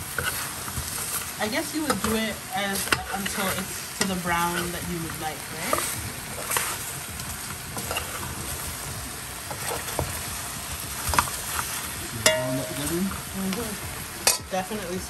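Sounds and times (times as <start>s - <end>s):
metal spoon stirring: 0.0s - 7.0s, 7.7s - 8.7s, 11.1s - 13.2s
meat sizzling in a metal pot: 0.0s - 15.0s
spoon clacking against pot: 12.2s - 12.9s, 14.2s - 14.5s.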